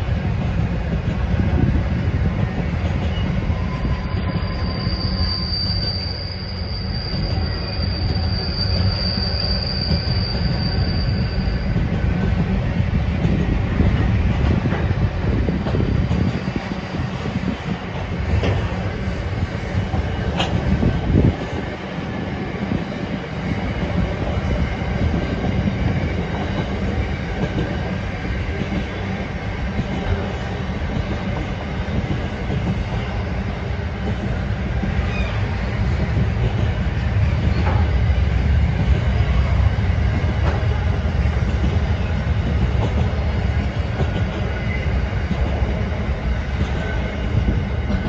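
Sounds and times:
freight train rolling past: 0.0 - 48.0
high wheel squeal: 3.1 - 12.0, 35.0 - 35.9.

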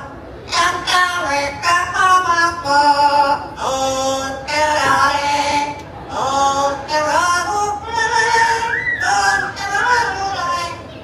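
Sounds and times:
parrot singing: 8.5 - 11.0.

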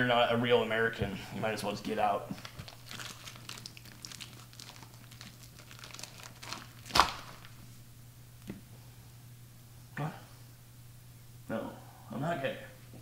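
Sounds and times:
crinkling and tearing of food: 2.3 - 7.6.

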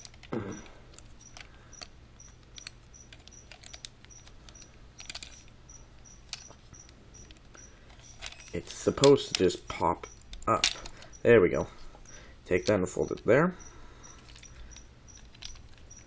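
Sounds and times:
plastic clicks and ticks: 0.0 - 11.2, 14.1 - 16.0
faint high chirp: 12.9 - 16.0.

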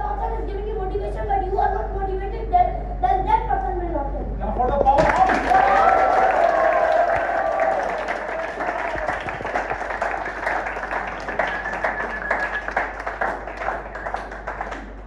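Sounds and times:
audience applauding: 4.9 - 15.0.

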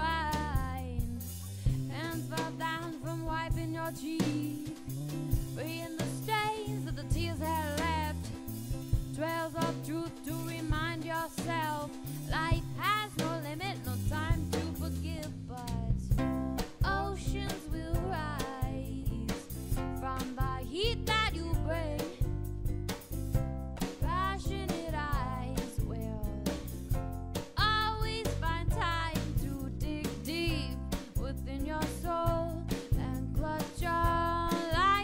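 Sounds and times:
song with singing and drums: 9.0 - 22.4.

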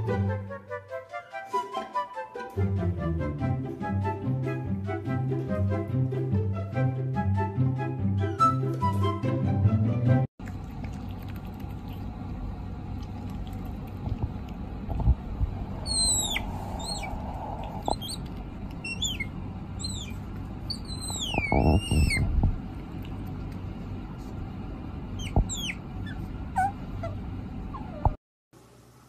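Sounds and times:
steady low rumble: 10.4 - 28.2
noisy burst: 13.8 - 26.6
squeaky animal calls: 15.7 - 22.4, 25.2 - 28.1.

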